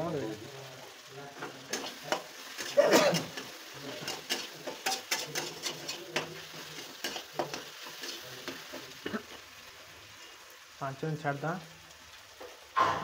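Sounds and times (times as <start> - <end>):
metal spatula scraping a pan: 1.4 - 9.4.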